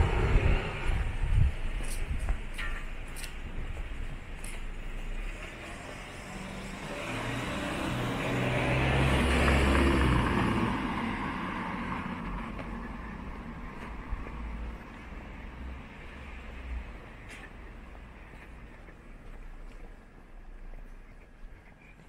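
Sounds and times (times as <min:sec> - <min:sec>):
motor vehicle passing: 0:00.0 - 0:01.6, 0:04.4 - 0:17.1.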